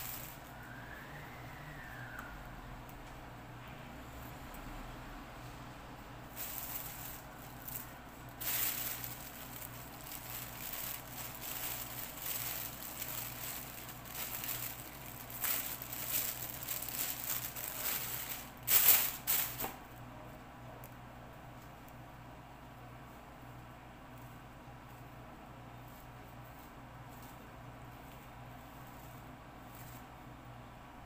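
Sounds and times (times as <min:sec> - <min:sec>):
plastic bags crinkling: 0:00.0 - 0:00.6, 0:06.3 - 0:19.8.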